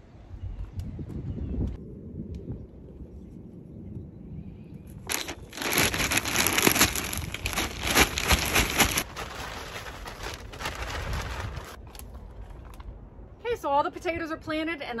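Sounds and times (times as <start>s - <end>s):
plastic bag crinkling: 5.1s - 12.0s.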